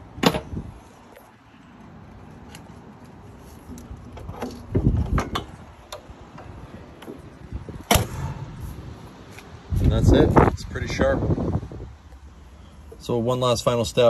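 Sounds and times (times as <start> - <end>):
engine hood slamming shut: 7.8 - 8.6.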